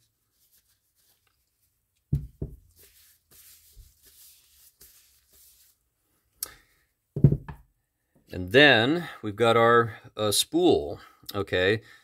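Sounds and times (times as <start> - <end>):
soft rustling: 0.0 - 6.3
dull thumps: 2.1 - 2.6, 7.2 - 7.6.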